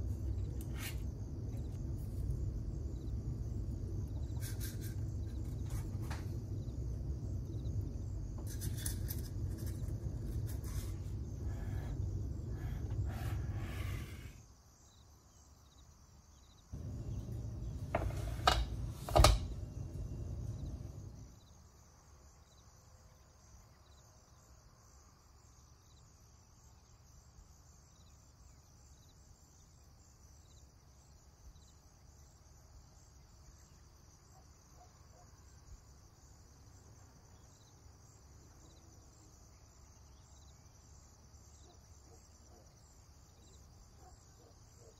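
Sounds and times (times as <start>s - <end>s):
insects chirping: 0.0s - 44.9s
handling noise rumble: 16.8s - 21.3s
sharp knocks: 17.8s - 19.6s.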